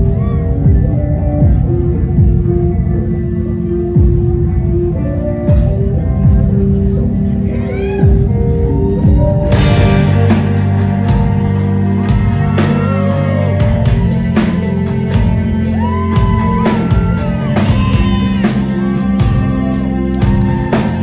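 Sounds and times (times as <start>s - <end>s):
bass and guitar: 0.0s - 21.0s
drum beat: 9.1s - 11.4s, 15.2s - 19.6s.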